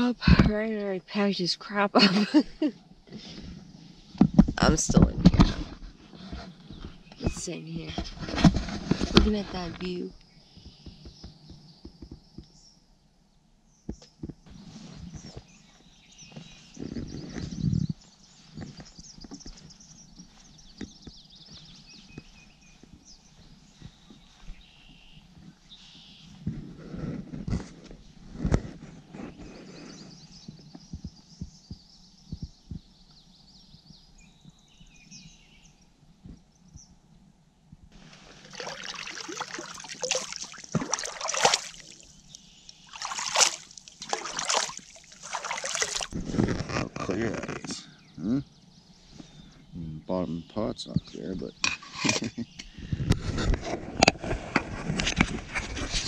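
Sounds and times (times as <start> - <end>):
birds singing trills and whistles: 6.2 - 8.2, 9.4 - 12.9, 13.6 - 26.6, 28.6 - 37.0, 38.6 - 46.2, 47.1 - 53.1
water splashing and sloshing: 38.0 - 46.3.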